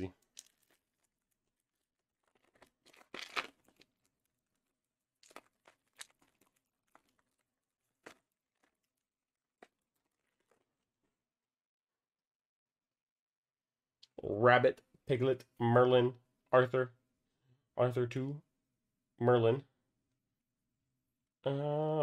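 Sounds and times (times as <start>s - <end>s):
foil wrapper tearing and crinkling: 2.2s - 4.0s.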